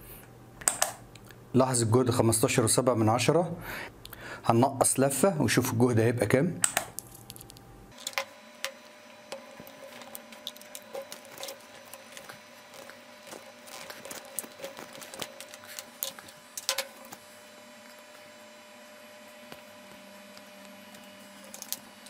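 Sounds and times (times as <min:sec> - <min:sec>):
faint steady whine: 0:00.0 - 0:22.0
wire clicking and crinkling: 0:06.6 - 0:18.2, 0:20.3 - 0:22.0.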